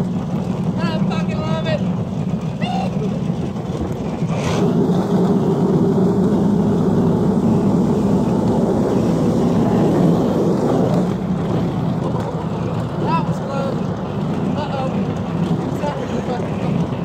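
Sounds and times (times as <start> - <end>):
truck engine and road noise: 0.0 - 17.0.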